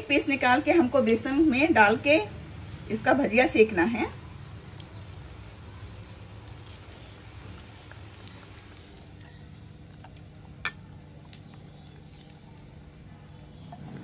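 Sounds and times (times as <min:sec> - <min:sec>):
deep-frying sizzle: 0:00.0 - 0:14.0
oil crackles and pops: 0:00.8 - 0:01.7, 0:04.4 - 0:14.0.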